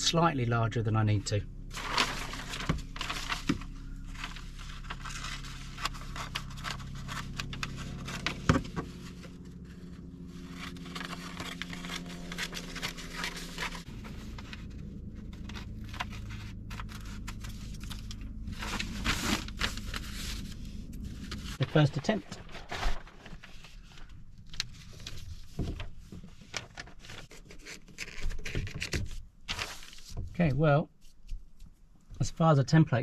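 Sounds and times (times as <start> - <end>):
low steady hum: 0.0 - 33.0
paper rustling and crinkling: 1.7 - 30.3.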